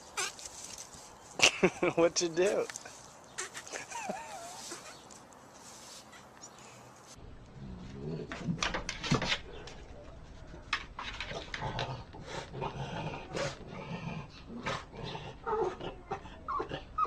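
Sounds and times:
dog claws scratching wooden door: 8.3 - 9.8
dog vocal noises: 11.3 - 17.0.

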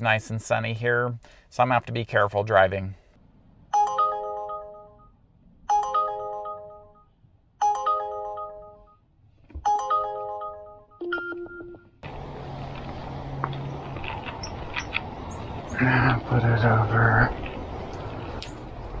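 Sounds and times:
smartphone alert chime: 3.7 - 9.0, 9.7 - 12.0.

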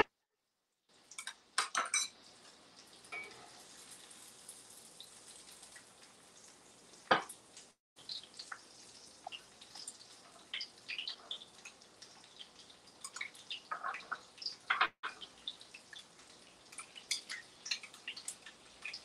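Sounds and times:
metal utensils clinking against pans: 1.1 - 4.6, 13.0 - 15.3, 16.6 - 19.0.

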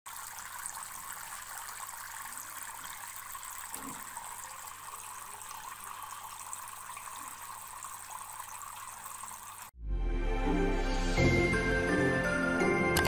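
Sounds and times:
water trickling into a tray: 0.1 - 9.7
music: 9.8 - 13.0.

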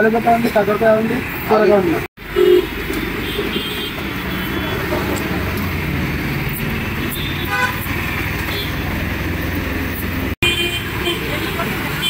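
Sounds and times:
traffic rumble: 0.0 - 12.0
vehicle horn toot: 2.4 - 5.0, 7.0 - 8.8, 10.4 - 12.0.

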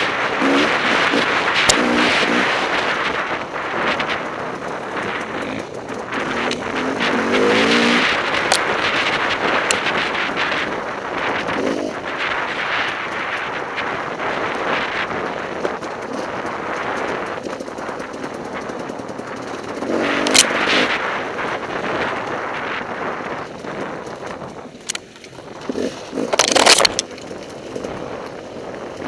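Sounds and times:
motorcycle engine firing pops: 24.3 - 27.4.

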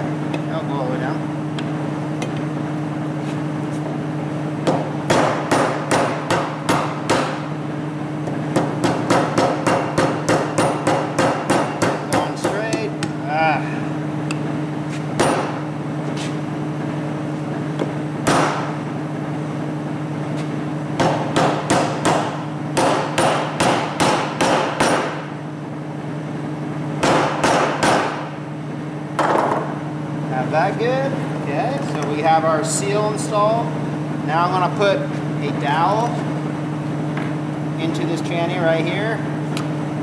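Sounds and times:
hammer tapping metal: 8.5 - 13.2, 21.0 - 25.2.

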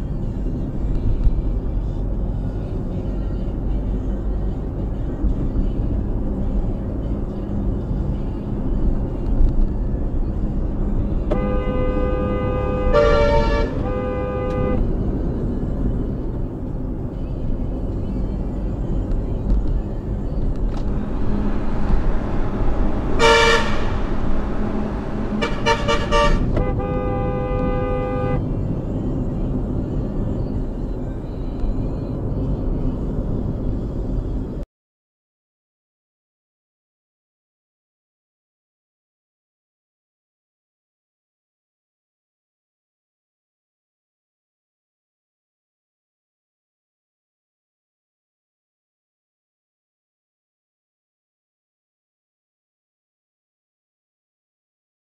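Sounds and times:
road and engine rumble: 0.0 - 34.7
car horn blasts: 11.1 - 15.0, 22.9 - 28.5.

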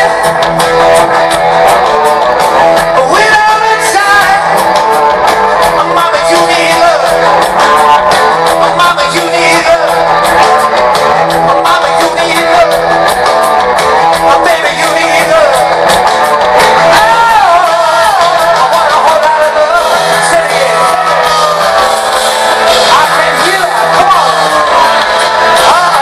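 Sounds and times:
live rock band playing: 0.0 - 26.0.

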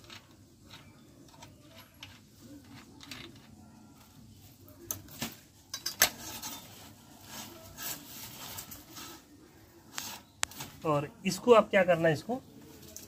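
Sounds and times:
wire scraping through metal rollers: 5.7 - 10.8.

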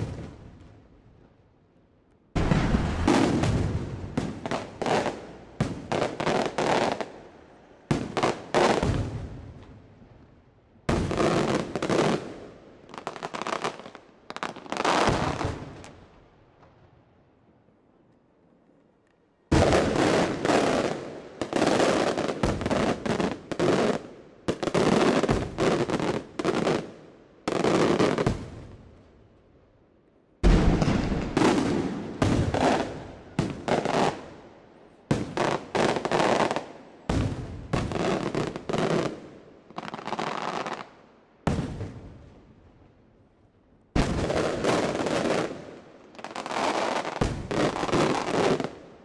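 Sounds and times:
firework bangs with echoes: 2.4 - 6.3, 30.4 - 34.2.

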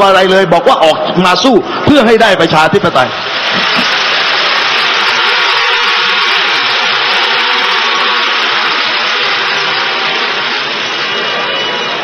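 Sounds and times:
crowd applauding and cheering: 2.7 - 12.0.

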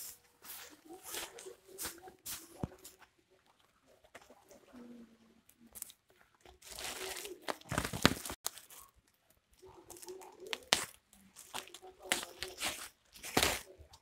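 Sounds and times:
sack fabric crinkling: 6.6 - 9.0.

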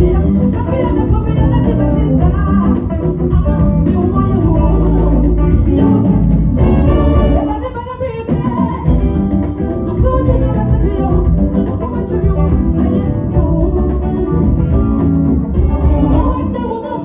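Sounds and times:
live gospel band music: 0.0 - 17.0.

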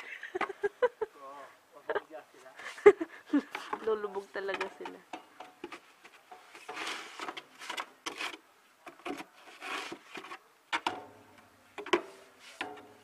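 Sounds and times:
shovel scraping through snow: 9.5 - 10.1.

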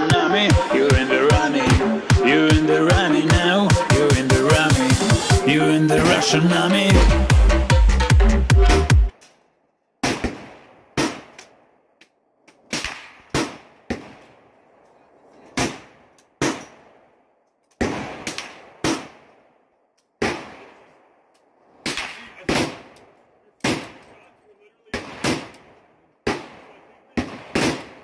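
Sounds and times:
rifle firing single shots: 10.0 - 11.7, 12.6 - 14.5, 15.4 - 19.5, 20.2 - 21.0, 21.6 - 28.0.

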